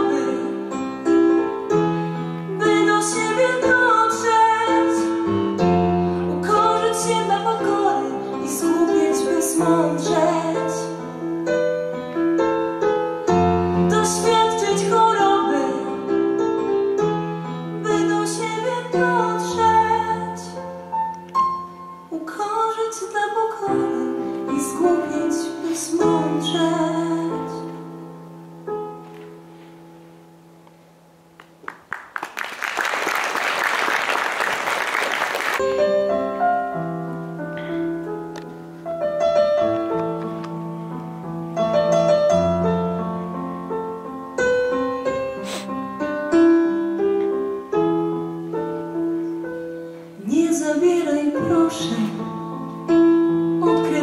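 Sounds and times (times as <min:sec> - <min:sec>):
woman singing: 0:00.0 - 0:00.8, 0:02.5 - 0:05.3, 0:06.3 - 0:11.0, 0:13.8 - 0:16.2, 0:17.8 - 0:20.7, 0:22.1 - 0:27.9, 0:50.2 - 0:52.8, 0:53.6 - 0:54.0
piano accompaniment: 0:00.0 - 0:54.0.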